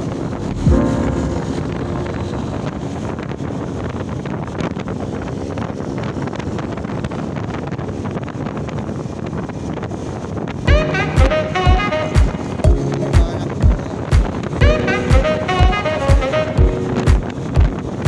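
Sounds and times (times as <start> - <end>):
road and traffic noise: 0.0 - 18.0
wind buffeting microphone: 0.0 - 18.0
short pitched sound: 0.4 - 3.5, 10.7 - 13.6, 14.6 - 17.3.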